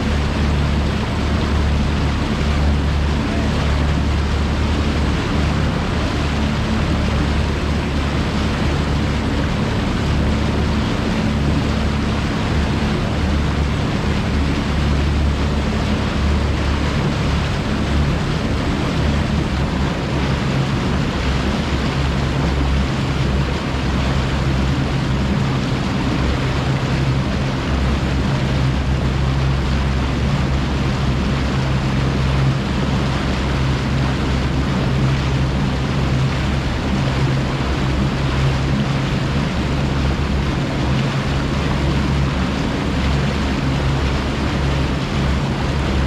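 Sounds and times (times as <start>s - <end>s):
outboard motor drone: 0.0s - 46.0s
rushing water: 0.0s - 46.0s
rushing wind: 0.0s - 46.0s.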